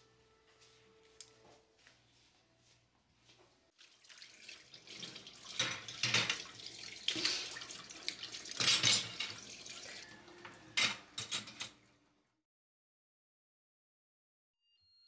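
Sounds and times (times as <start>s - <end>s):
running and dripping water: 3.8s - 10.6s
plates clinking in wire dish rack: 5.6s - 6.5s, 8.6s - 9.5s, 10.4s - 11.8s.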